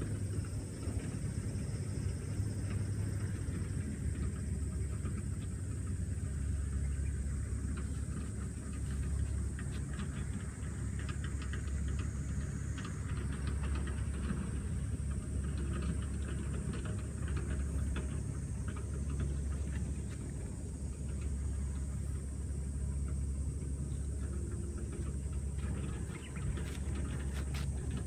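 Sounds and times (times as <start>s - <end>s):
faint rustles and ticks: 0.0s - 28.0s
wind rumbling on microphone: 13.0s - 28.0s.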